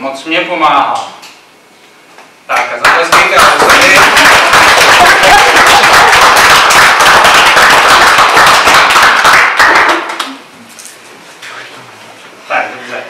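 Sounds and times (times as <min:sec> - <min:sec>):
audience applauding: 0:02.5 - 0:10.4.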